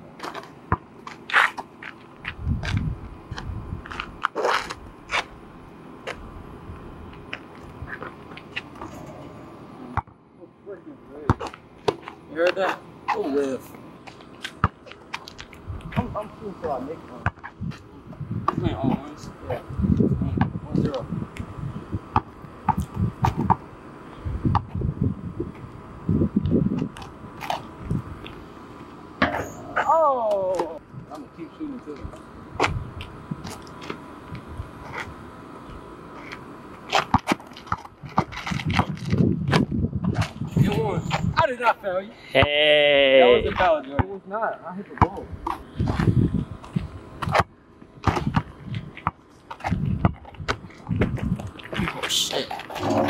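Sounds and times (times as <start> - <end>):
sneakers scuffing and scraping: 0.1 - 5.4, 7.0 - 9.3, 11.2 - 19.2, 26.7 - 30.8, 36.1 - 41.4, 44.9 - 53.0
basketball bouncing on asphalt: 0.2 - 5.3, 11.2 - 12.3, 14.0 - 16.1, 17.2 - 17.8, 22.1 - 23.7, 24.4 - 24.9, 29.2 - 29.6, 36.9 - 40.4, 45.0 - 51.4.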